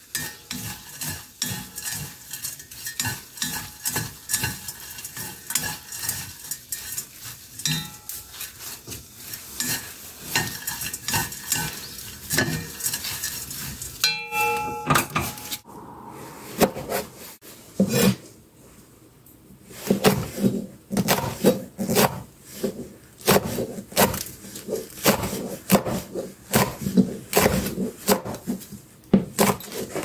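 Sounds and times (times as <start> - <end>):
dried fish rustling in a pan: 0.0 - 14.1
knife chopping on cutting board: 19.8 - 30.0.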